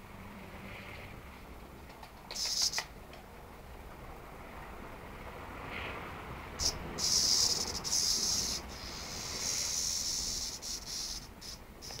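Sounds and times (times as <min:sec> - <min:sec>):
cicada buzzing: 0:02.3 - 0:02.9, 0:06.5 - 0:12.0.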